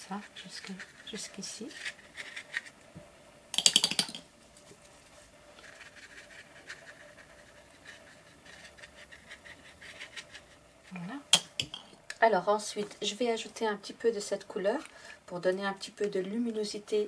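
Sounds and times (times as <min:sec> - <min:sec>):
paintbrush scratching paper: 0:04.8 - 0:10.6.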